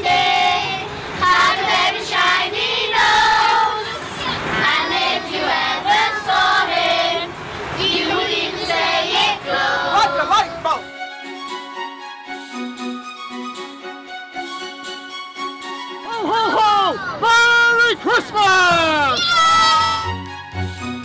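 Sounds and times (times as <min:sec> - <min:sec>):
children singing: 0:00.0 - 0:10.2.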